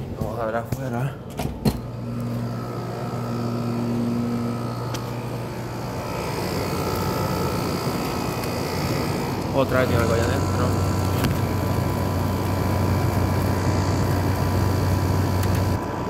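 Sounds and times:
air conditioner hum and whir: 0:00.0 - 0:16.0.

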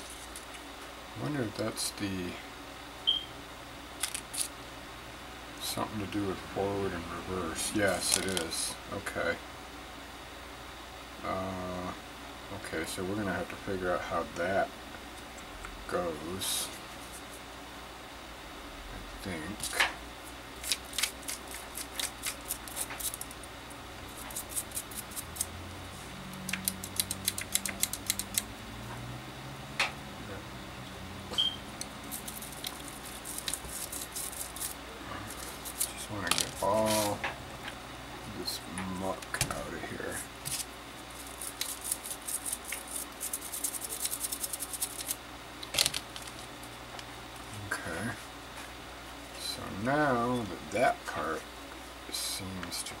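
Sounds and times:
toothbrush scrubbing: 0:20.6 - 0:23.4, 0:24.1 - 0:25.6, 0:26.5 - 0:28.4, 0:32.0 - 0:36.1, 0:40.5 - 0:45.2.

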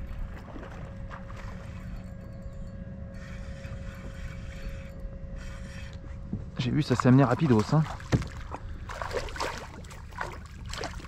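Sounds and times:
faint steady hum: 0:00.0 - 0:11.0
low steady rumble: 0:00.0 - 0:11.0.

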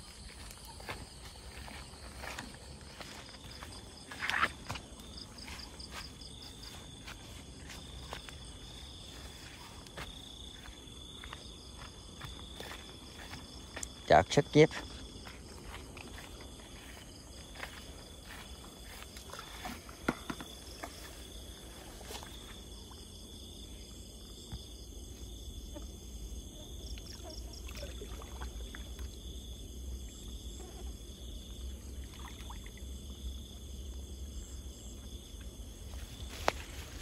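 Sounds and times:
footsteps through tall grass: 0:00.0 - 0:14.1, 0:14.7 - 0:20.0, 0:35.8 - 0:37.0
crickets trilling: 0:00.0 - 0:37.0.

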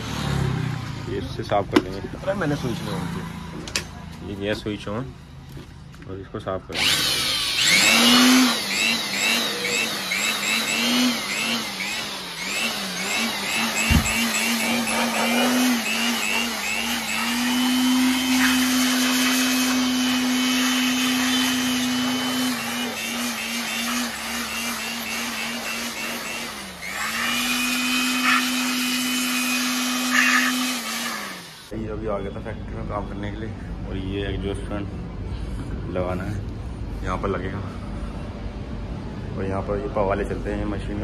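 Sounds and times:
electric air blower whine: 0:06.7 - 0:31.8.

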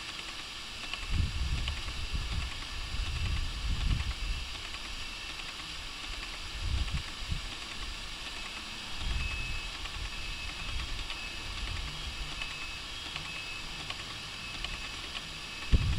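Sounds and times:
faint scattered ticks: 0:00.0 - 0:15.9
outdoor background hiss: 0:00.0 - 0:15.9.

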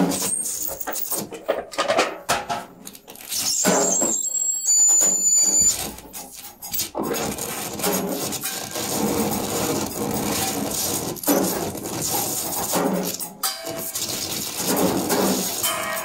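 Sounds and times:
thin high tone: 0:03.5 - 0:05.9
rubbing and scraping on drums: 0:05.3 - 0:16.0.

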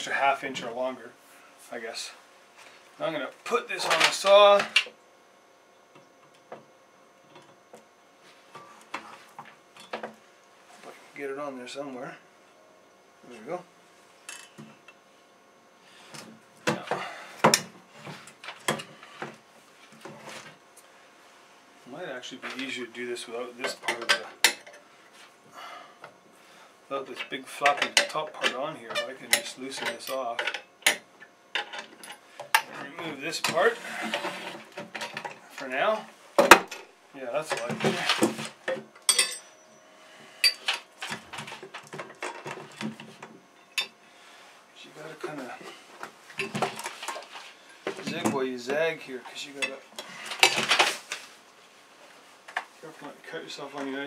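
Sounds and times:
metal frame clunking and scraping on wood: 0:31.6 - 0:35.5
metal parts clinking: 0:39.1 - 0:39.5.

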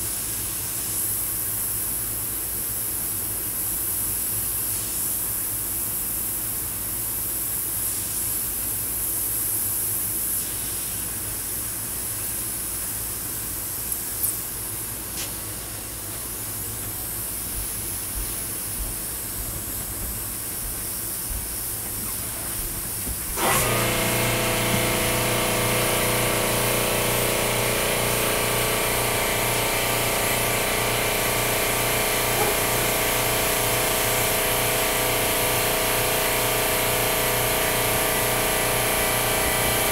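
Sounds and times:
air compressor motor humming: 0:08.4 - 0:39.9
airbrush hissing: 0:20.2 - 0:34.7.

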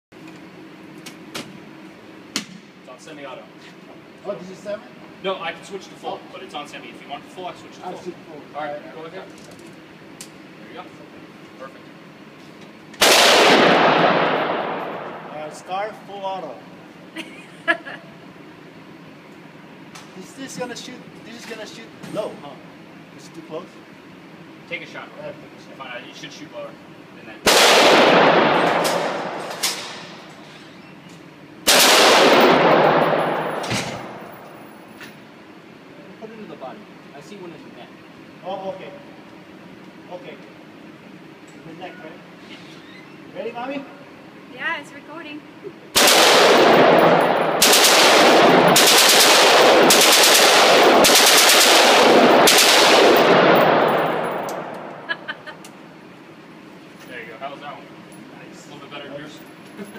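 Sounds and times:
automatic rifle gunfire: 0:13.0 - 0:15.3, 0:27.5 - 0:30.1, 0:31.6 - 0:34.4, 0:46.0 - 0:55.1
gunfire echo: 0:13.0 - 0:15.5, 0:27.5 - 0:30.2, 0:31.7 - 0:34.6, 0:46.0 - 0:55.1.

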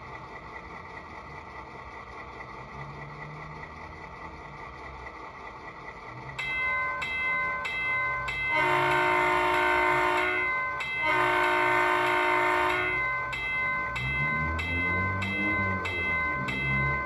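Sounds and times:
diesel engine revving: 0:00.0 - 0:17.0
ringing bell: 0:06.4 - 0:17.0
model train horn blasts: 0:08.4 - 0:13.0.

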